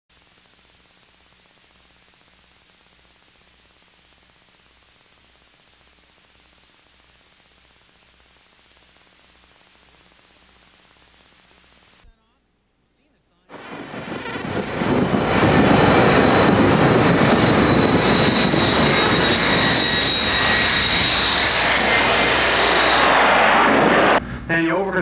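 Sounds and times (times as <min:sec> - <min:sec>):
tape hiss: 0:00.1 - 0:22.9, 0:24.1 - 0:25.0
faint low hum: 0:00.2 - 0:13.6.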